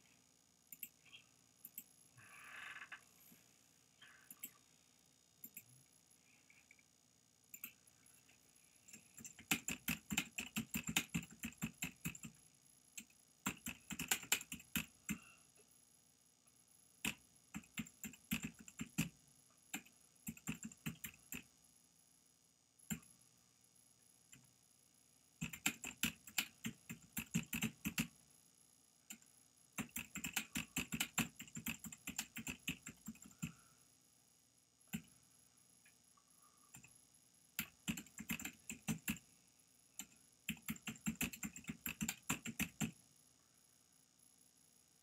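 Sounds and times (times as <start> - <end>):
keyboard typing: 8.9 - 12.4, 13.0 - 15.3, 17.0 - 19.1, 19.7 - 21.5, 25.4 - 28.2, 29.8 - 33.6, 37.6 - 39.2, 40.0 - 43.0.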